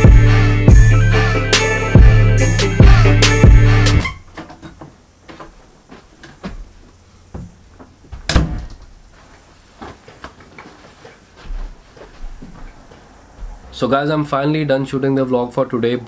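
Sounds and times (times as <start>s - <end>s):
light knocks and steps: 4.0s - 13.8s.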